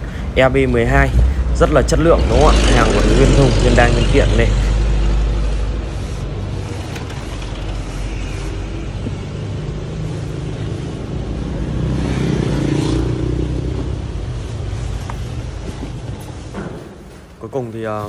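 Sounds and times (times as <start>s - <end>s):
vehicle engine running: 2.3s - 11.5s.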